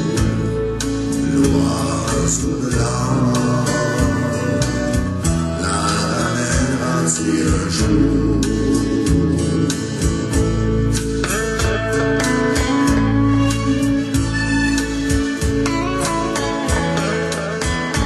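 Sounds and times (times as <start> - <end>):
guitar-led instrumental music: 0.0 - 18.0.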